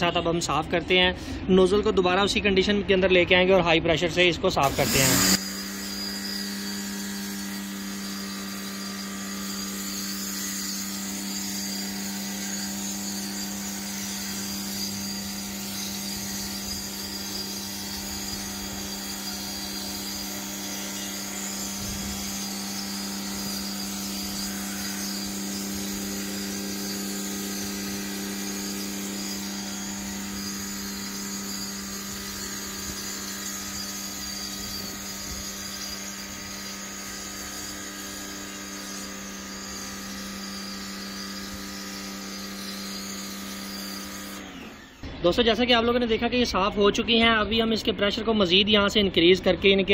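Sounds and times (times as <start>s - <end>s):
pressure washer motor hum: 4.6s - 45.1s.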